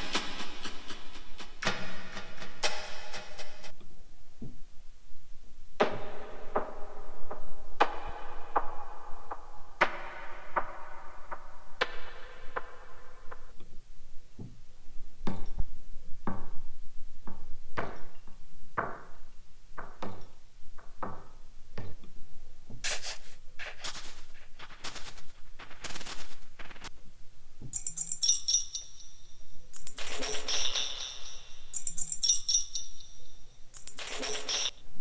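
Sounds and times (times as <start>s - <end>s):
noisy snare hits: 9.8s - 13.4s, 22.8s - 26.9s
tambourine and shaker jingle: 27.7s - 34.8s.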